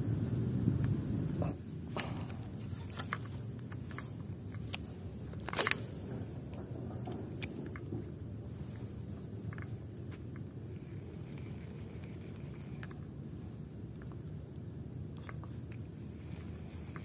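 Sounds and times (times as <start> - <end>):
steady low rumble: 0.0 - 17.0
handling noise: 1.4 - 14.4.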